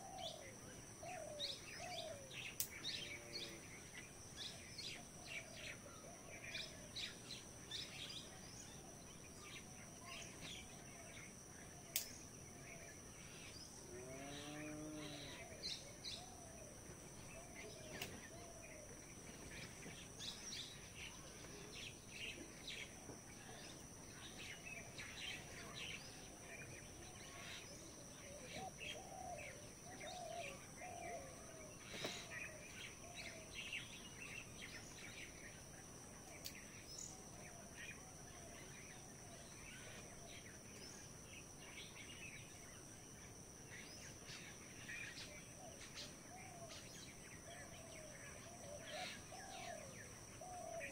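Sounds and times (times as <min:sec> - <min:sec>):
high-pitched insect whine: 0:00.1 - 0:50.9
birds chirping and calling: 0:43.9 - 0:50.9.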